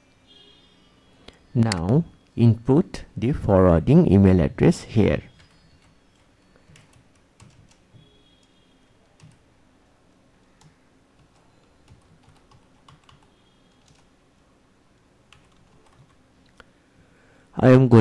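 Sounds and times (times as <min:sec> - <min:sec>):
faint keyboard typing: 0:05.3 - 0:09.5, 0:10.4 - 0:16.7.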